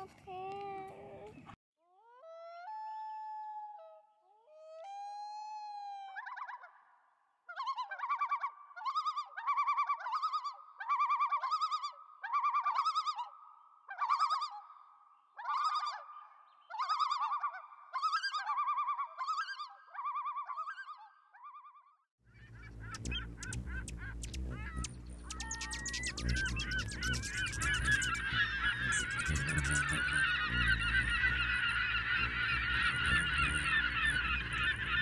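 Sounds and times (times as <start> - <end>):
bird calling with warbling tone: 15.4 - 35.0.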